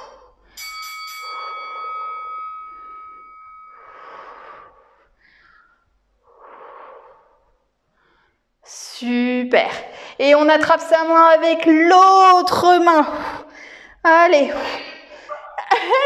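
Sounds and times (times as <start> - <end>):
woman breathing heavily: 0.0 - 0.6, 1.2 - 8.6, 9.8 - 10.2, 13.1 - 15.6
bell-like ding: 0.6 - 3.9.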